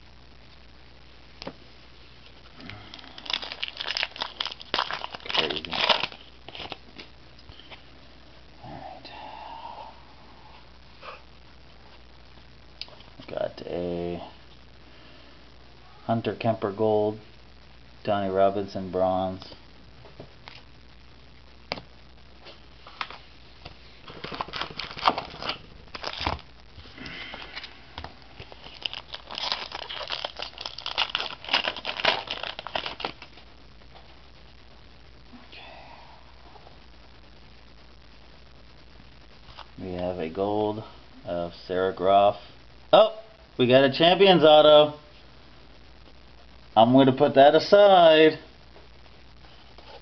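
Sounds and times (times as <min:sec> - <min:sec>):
foil wrapper crinkling and tearing: 0:02.6 - 0:07.1, 0:24.0 - 0:34.0.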